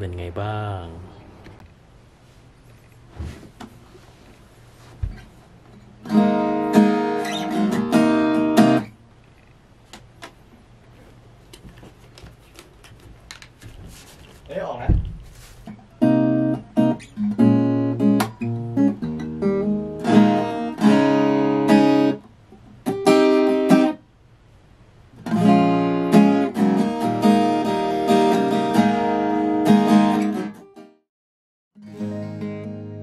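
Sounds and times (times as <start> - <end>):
acoustic guitar strumming and plucking: 5.1 - 9.0, 15.7 - 24.0, 25.2 - 31.0, 31.8 - 33.0.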